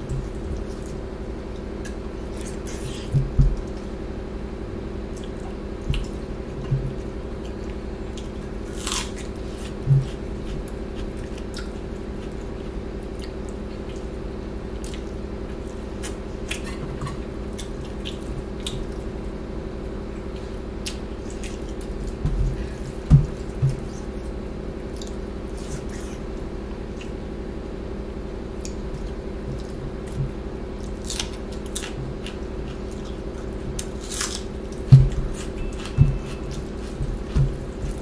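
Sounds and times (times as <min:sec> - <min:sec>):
steady low hum: 0:00.0 - 0:38.0
soft low thumps: 0:03.1 - 0:03.7, 0:05.8 - 0:07.0, 0:22.1 - 0:23.9, 0:34.9 - 0:38.0
wet chewing: 0:28.6 - 0:38.0.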